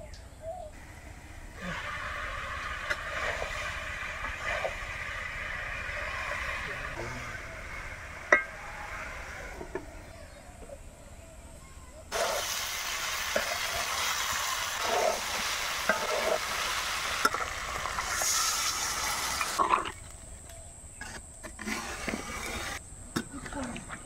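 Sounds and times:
loud sizzle of frying in oil: 0:01.6 - 0:08.9, 0:12.1 - 0:19.7.

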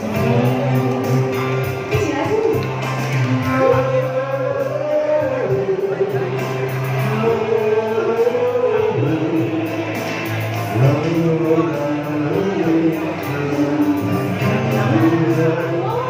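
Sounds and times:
woman singing a slow ballad: 0:00.1 - 0:02.8, 0:14.7 - 0:16.0.

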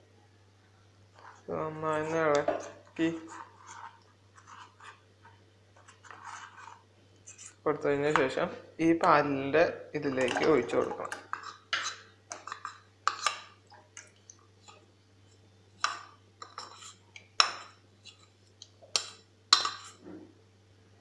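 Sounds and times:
spoon scraping and knocking a bowl: 0:02.3 - 0:05.0, 0:05.8 - 0:08.4, 0:10.2 - 0:13.5, 0:15.8 - 0:20.2.

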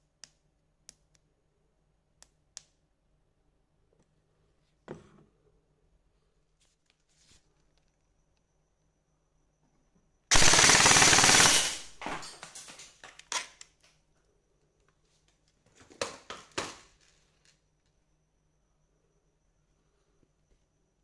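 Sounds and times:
airsoft gun full-auto burst: 0:10.3 - 0:12.0.

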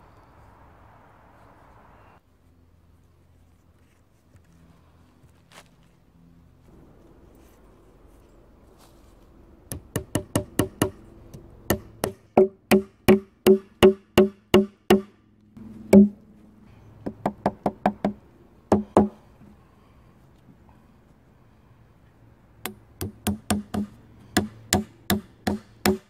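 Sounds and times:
axe hammering nails into wood: 0:09.7 - 0:11.0, 0:11.7 - 0:15.1, 0:15.9 - 0:16.2, 0:17.0 - 0:19.2, 0:22.6 - 0:26.0.

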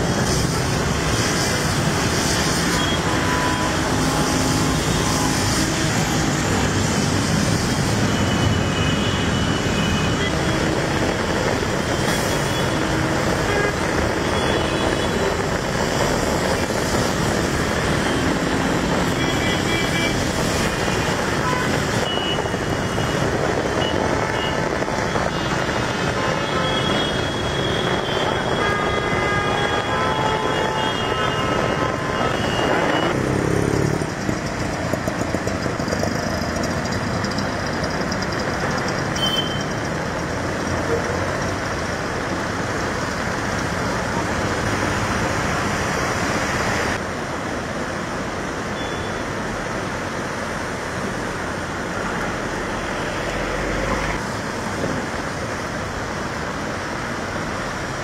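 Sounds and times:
traffic noise: 0:00.0 - 0:58.0
close vehicle engine: 0:32.8 - 0:43.9
vehicle horns tooting: 0:39.2 - 0:39.7.

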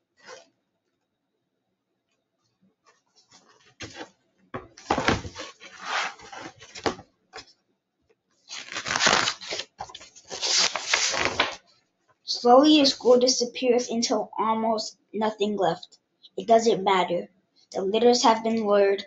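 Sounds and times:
book pages rustling: 0:02.9 - 0:07.5, 0:08.5 - 0:11.7.

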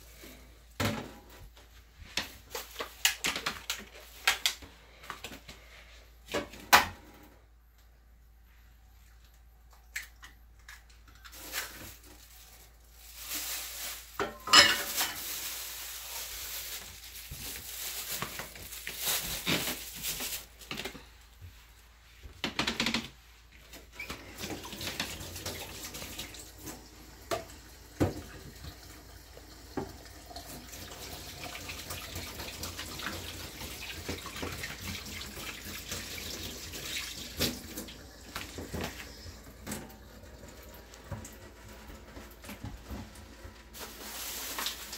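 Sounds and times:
dishes and utensils knocking: 0:14.2 - 0:15.0.

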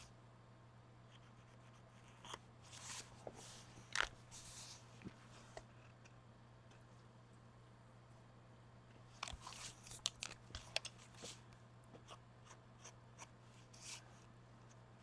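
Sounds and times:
low steady hum: 0:00.0 - 0:15.0
paper crinkling and tapping: 0:09.2 - 0:11.4.

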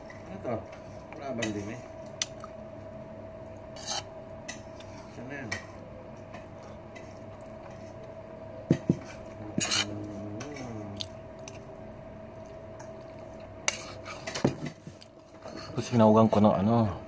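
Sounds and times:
faint hum: 0:00.0 - 0:17.0
metal spoon scraping a plate: 0:03.8 - 0:04.6, 0:09.6 - 0:09.9.

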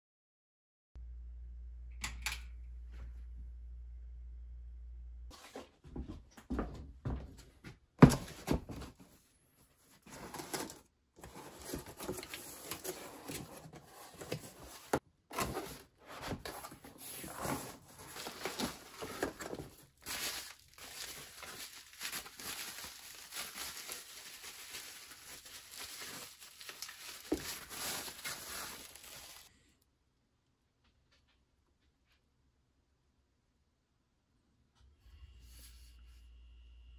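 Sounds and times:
cardboard rustling: 0:09.8 - 0:29.5
plastic wrapping crinkling: 0:14.3 - 0:29.5.

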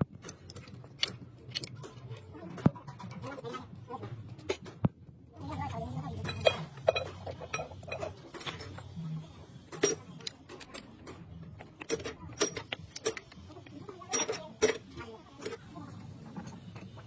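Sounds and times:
metal parts clinking: 0:06.2 - 0:08.9, 0:09.7 - 0:13.4, 0:14.1 - 0:15.6.

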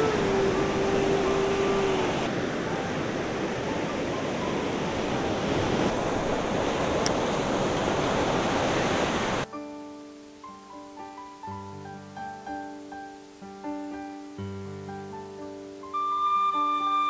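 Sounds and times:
piano music: 0:00.0 - 0:05.7, 0:09.4 - 0:17.0
surf washing over sandy beach: 0:00.0 - 0:09.5.

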